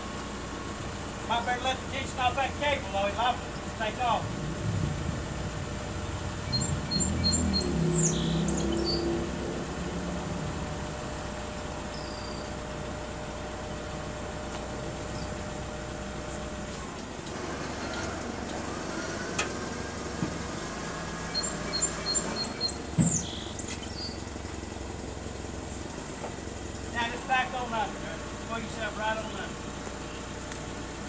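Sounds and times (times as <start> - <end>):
forklift engine idling: 0.0 - 31.0
birds chirping and whistling: 6.1 - 9.3, 11.9 - 12.6, 15.1 - 15.4, 21.1 - 24.3.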